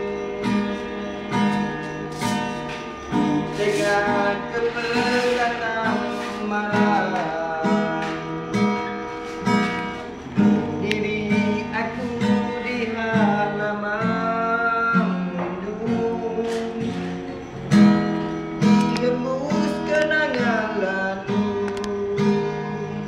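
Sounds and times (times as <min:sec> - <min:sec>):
acoustic guitars strumming: 0:00.0 - 0:23.0
person singing: 0:03.4 - 0:08.2.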